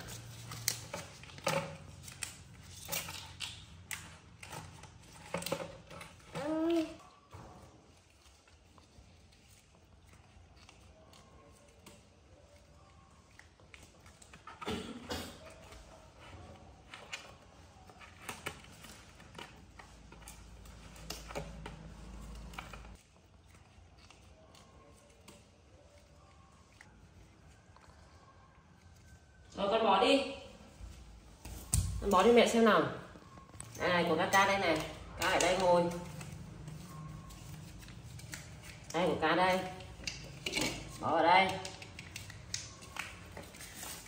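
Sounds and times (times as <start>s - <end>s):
paper banknotes crinkling: 0.0s - 5.4s, 33.6s - 44.0s.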